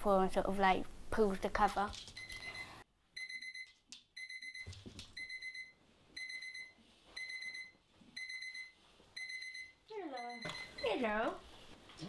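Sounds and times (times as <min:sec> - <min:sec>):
alarm clock pulsing beep: 0:02.2 - 0:11.1.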